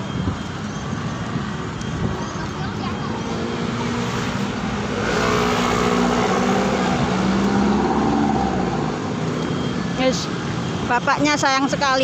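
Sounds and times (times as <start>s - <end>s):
steady traffic noise: 0.0s - 12.0s
vehicle driving past: 3.3s - 9.2s.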